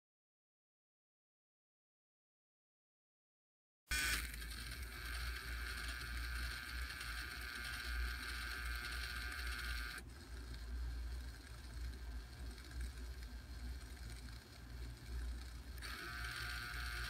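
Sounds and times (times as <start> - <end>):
motor high whine: 3.9 - 17.0
low hum: 4.0 - 17.0.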